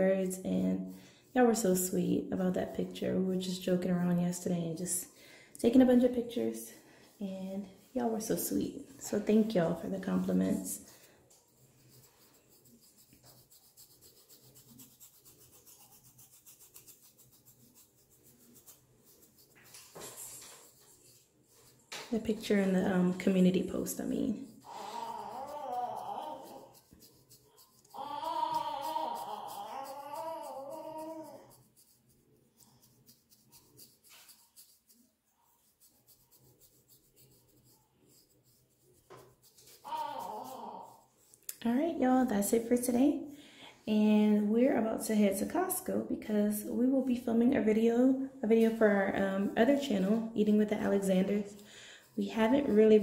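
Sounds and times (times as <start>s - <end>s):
comb scratching through hair: 7.9s - 43.0s, 48.5s - 53.0s.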